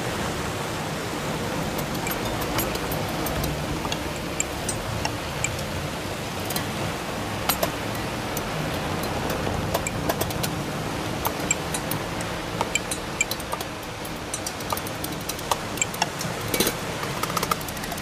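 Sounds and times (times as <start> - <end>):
short irregular clicks: 1.8 - 5.8, 7.4 - 10.6, 11.2 - 18.0.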